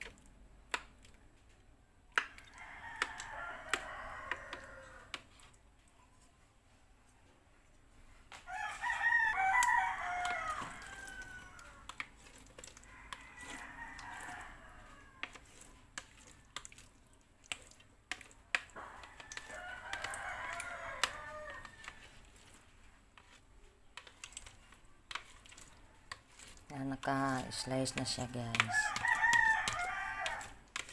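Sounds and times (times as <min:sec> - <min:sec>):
rooster crowing: 0:02.5 - 0:05.1, 0:08.5 - 0:11.9, 0:12.8 - 0:15.3, 0:18.8 - 0:22.1, 0:27.1 - 0:30.6
utensil scraping a metal tray: 0:19.1 - 0:30.9.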